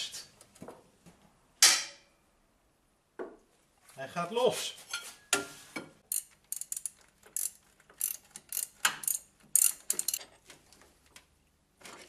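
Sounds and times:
socket ratchet clicking: 6.1s - 10.2s.

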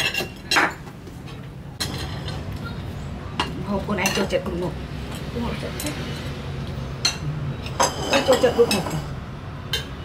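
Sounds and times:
spoons clinking on ceramic bowls: 7.0s - 9.1s.

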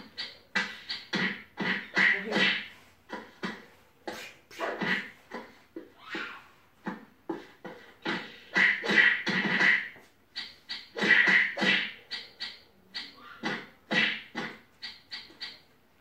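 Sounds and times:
cartoon fight hits and slaps: 8.1s - 9.9s, 10.8s - 12.0s, 13.4s - 14.6s.

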